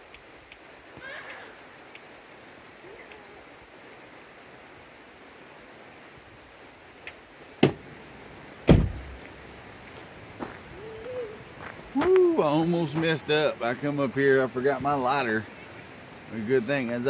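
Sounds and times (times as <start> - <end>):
steady hiss: 0.0 - 17.0
sharp knocks: 8.7 - 9.1.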